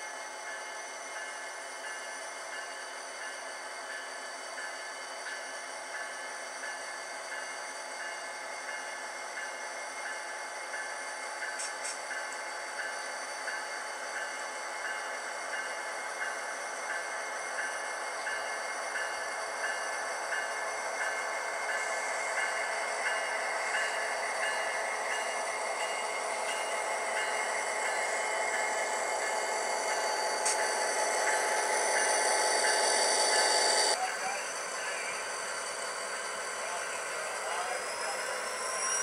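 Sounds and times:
model train motor humming: 11.4s - 39.0s.

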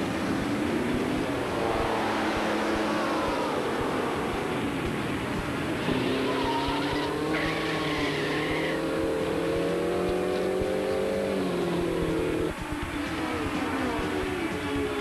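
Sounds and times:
race car engine: 0.0s - 15.0s
tire squeal screech: 5.8s - 9.8s.

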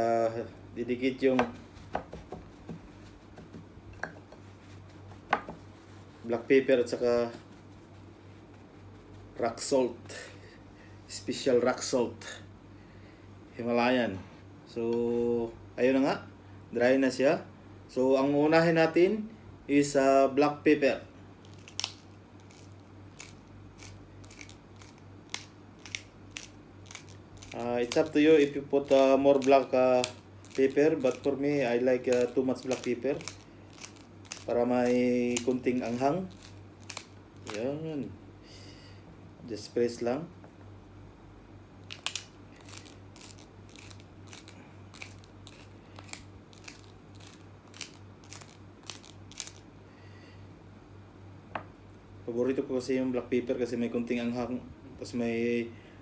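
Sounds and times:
faint low hum: 0.0s - 56.0s
pepper mill grinding: 21.4s - 37.8s, 41.8s - 49.7s.

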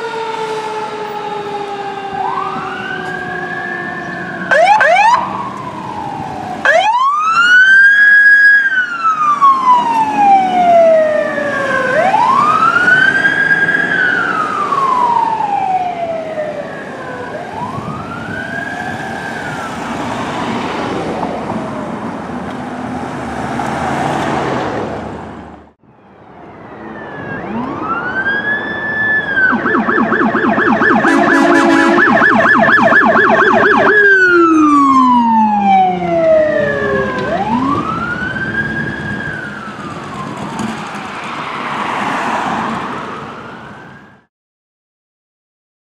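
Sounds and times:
electronic siren wailing: 0.0s - 19.9s, 25.9s - 40.5s
road and engine noise: 0.0s - 44.3s.

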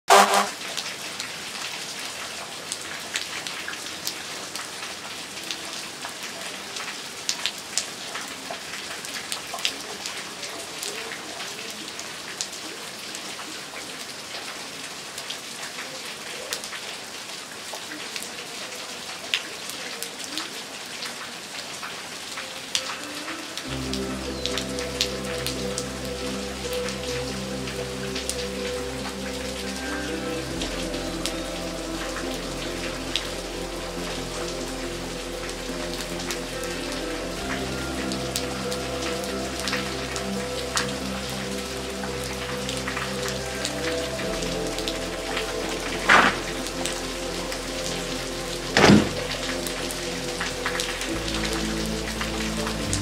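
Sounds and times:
steady rain on pavement: 0.0s - 53.0s
raindrops ticking: 21.0s - 53.0s
soft music: 22.2s - 53.0s.

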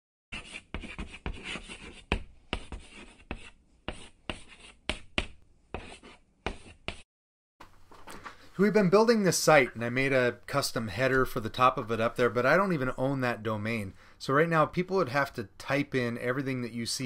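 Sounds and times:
chalk scratching on chalkboard: 0.3s - 7.1s
chalk tapping on board: 0.4s - 7.0s.

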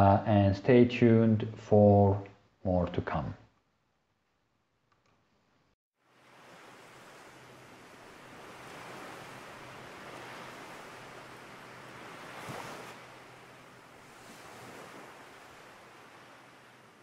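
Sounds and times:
ocean waves breaking: 6.0s - 17.0s.

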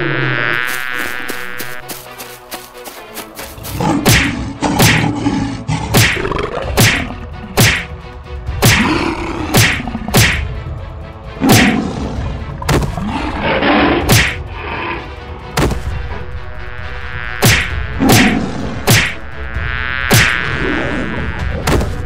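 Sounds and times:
animal growls and roars: 3.6s - 6.8s, 8.8s - 10.1s, 11.4s - 15.2s
cartoon whacking hits: 4.0s - 5.1s, 5.9s - 7.9s, 8.6s - 8.8s, 9.5s - 10.5s, 11.4s - 11.8s, 14.1s - 14.4s, 17.4s - 19.2s, 20.1s - 20.4s.

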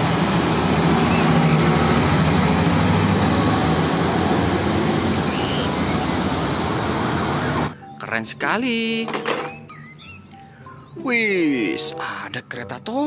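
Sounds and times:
truck engine passing: 0.0s - 7.8s
road and traffic noise: 0.0s - 11.0s.

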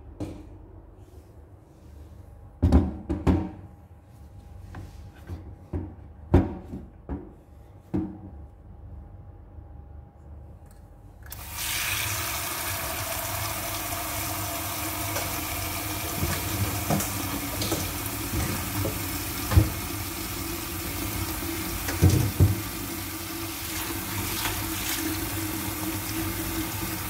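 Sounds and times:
kitchen tap turned on: 11.3s - 20.0s, 21.7s - 22.9s
water running into steel bowl: 11.3s - 27.0s.

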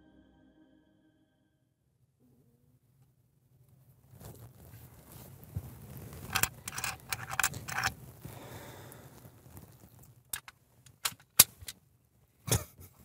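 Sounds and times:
small metal objects clinking: 6.3s - 7.9s.

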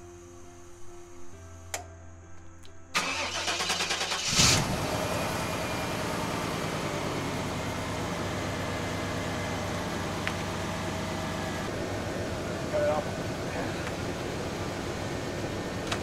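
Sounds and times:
engine cranking and starting: 3.0s - 7.6s
engine idling: 3.0s - 16.0s.

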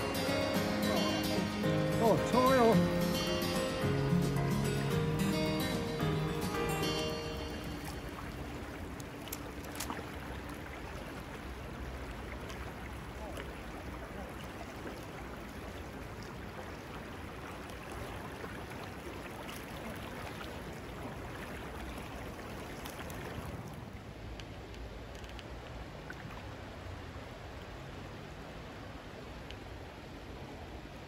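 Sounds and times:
river rushing over rocks: 0.0s - 24.3s.

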